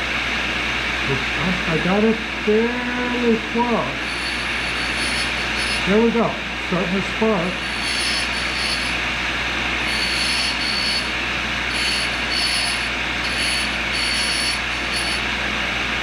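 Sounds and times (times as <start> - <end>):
grinder wheel grinding hiss: 3.9 - 6.2, 7.4 - 9.1, 9.8 - 15.3
high squeal of grinding: 4.0 - 6.1, 7.5 - 9.0, 9.8 - 15.3.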